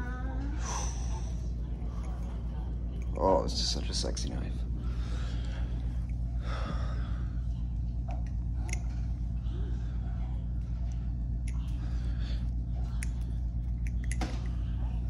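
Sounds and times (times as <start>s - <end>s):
steady low hum: 0.0s - 15.0s
breathy exhale: 0.6s - 1.5s
butterfly knife handles clicking: 8.2s - 8.9s, 12.9s - 14.5s.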